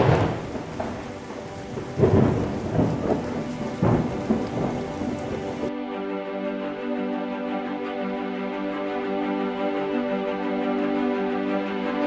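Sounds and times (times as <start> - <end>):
steady rain: 0.0 - 5.7
thunder claps: 0.0 - 5.7.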